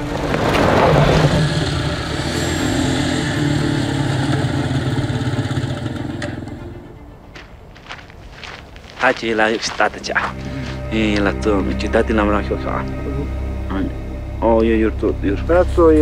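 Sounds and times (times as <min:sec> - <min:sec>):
motorcycle engines droning: 0:00.0 - 0:07.3.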